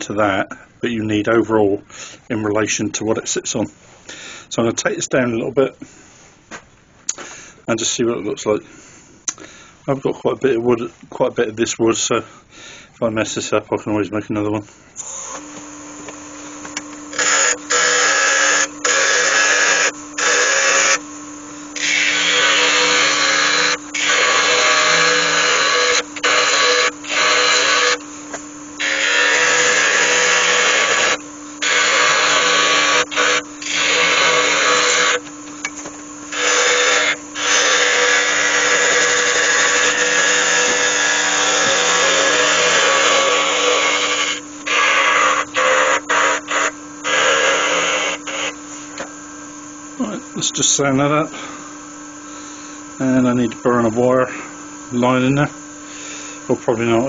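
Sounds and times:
lathe humming: 14.4s - 57.0s
gouge cutting spinning wood: 17.1s - 48.6s.

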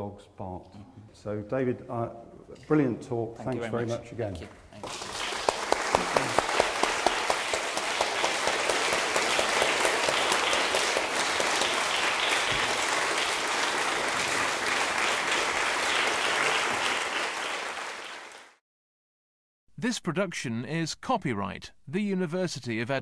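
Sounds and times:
audience applauding: 4.8s - 18.6s
close loud claps: 4.8s - 18.6s.

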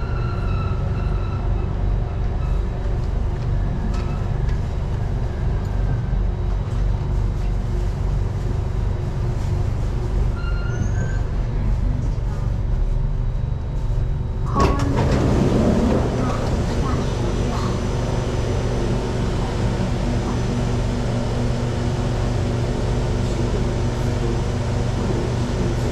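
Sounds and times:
train doors opening with clatter: 0.0s - 4.8s, 10.2s - 12.4s, 14.4s - 22.6s
underground train rumbling: 0.0s - 25.9s
high brake squeals: 10.4s - 11.3s.

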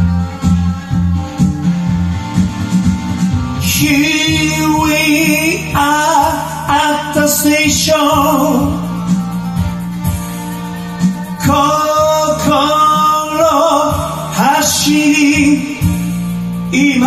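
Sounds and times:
rock and roll backing track: 0.0s - 17.0s
man singing into a microphone: 3.6s - 9.4s, 11.0s - 17.0s.

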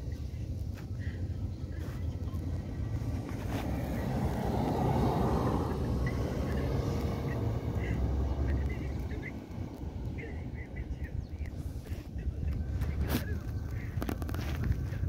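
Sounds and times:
steady low rumble: 0.0s - 15.0s
car driving past: 1.8s - 11.7s.

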